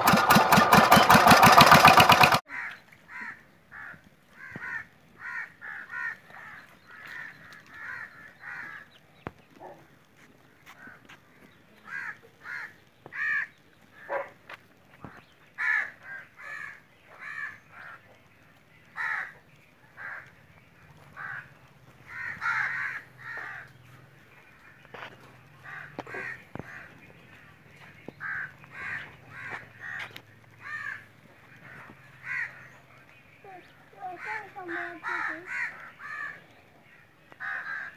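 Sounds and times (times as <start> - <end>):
birds calling: 0.0 - 37.9.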